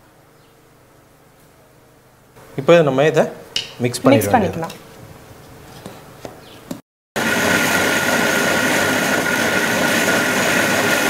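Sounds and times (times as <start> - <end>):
mixer grinder motor whine: 7.2 - 11.0.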